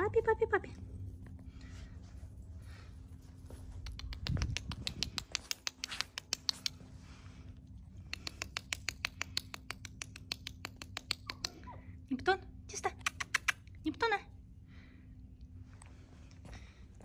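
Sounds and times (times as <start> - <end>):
puppy claws clicking on concrete: 3.5 - 7.0, 7.8 - 11.7, 12.9 - 13.8.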